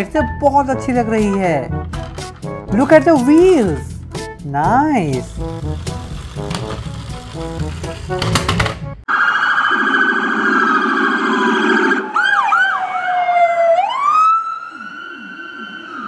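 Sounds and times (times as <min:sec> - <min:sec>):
electronic police siren: 0:09.1 - 0:16.0.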